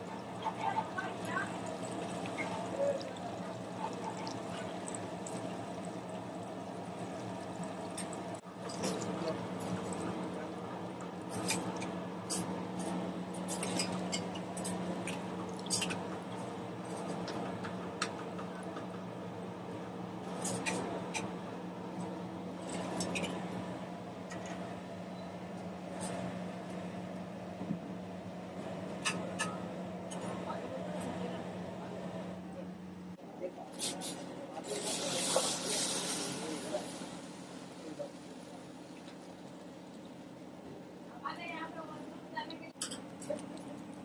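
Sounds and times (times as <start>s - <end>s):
food sizzling in hot oil: 34.6s - 39.8s.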